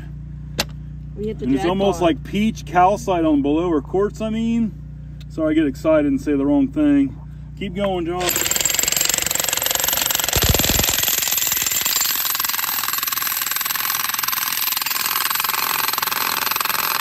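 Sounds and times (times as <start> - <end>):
jackhammer hammering rock: 8.2 - 17.0.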